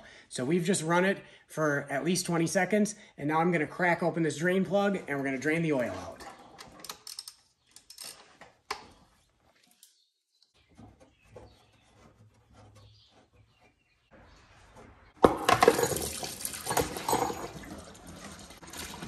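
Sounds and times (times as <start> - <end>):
oil gushing into a drain pan: 15.5 - 19.0.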